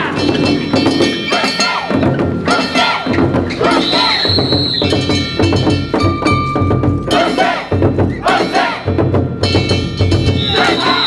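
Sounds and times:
struck metal percussion: 0.0 - 11.0
taiko drum beats: 0.0 - 11.0
people shouting calls: 1.3 - 5.2, 10.4 - 11.0.

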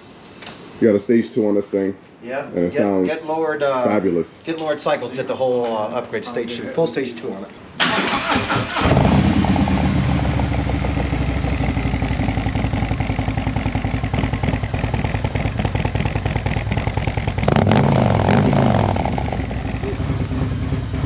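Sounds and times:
motorcycle engine idling and revving: 8.2 - 21.0.

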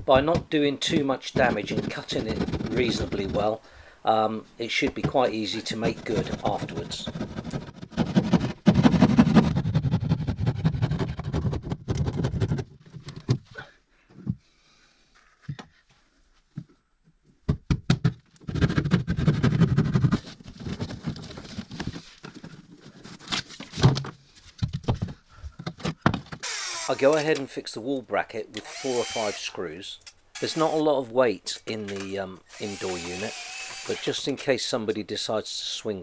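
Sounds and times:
hand saw cutting plasterboard: 1.4 - 3.4, 5.5 - 11.4, 28.6 - 29.5, 32.6 - 34.2.

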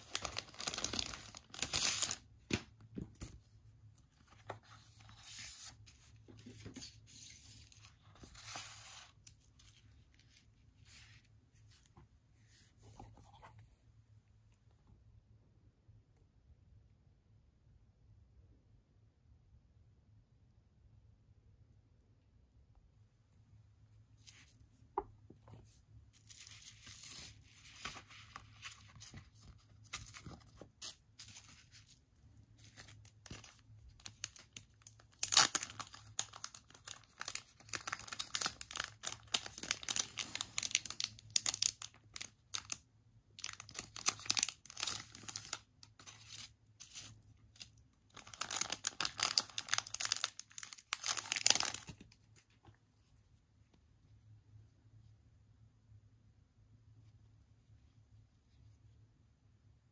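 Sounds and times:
plastic packaging crinkling and tearing: 0.0 - 2.6, 32.6 - 42.8, 43.4 - 52.1.

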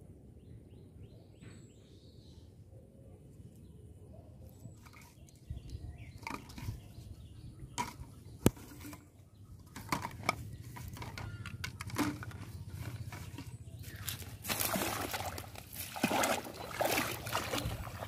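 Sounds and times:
plastic bottles knocking and crinkling: 7.8 - 14.8.

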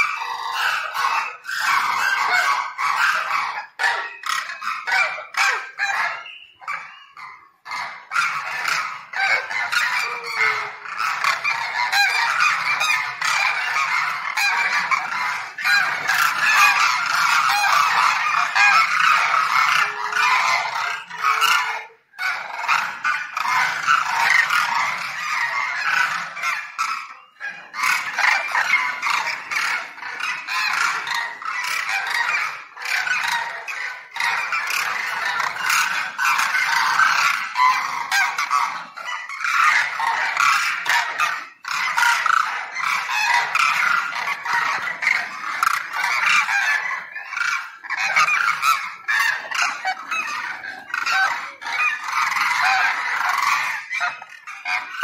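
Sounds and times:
cranes calling in chorus: 0.0 - 55.0.

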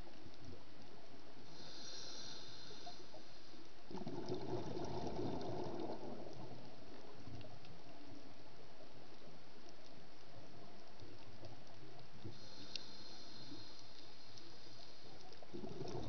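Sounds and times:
hiss of inhaled air: 1.5 - 3.8, 12.3 - 15.4
exhaled air bubbling: 3.8 - 7.6, 12.3 - 16.0.

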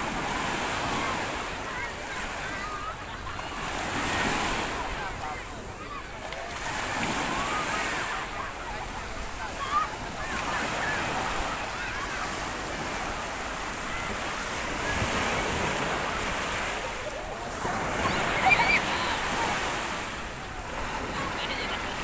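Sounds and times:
ocean waves breaking: 0.0 - 22.0.

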